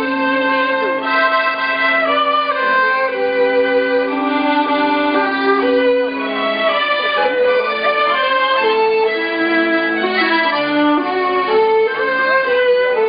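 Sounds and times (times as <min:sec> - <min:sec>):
folk dance melody: 0:00.0 - 0:13.0
low drone note: 0:00.0 - 0:13.0.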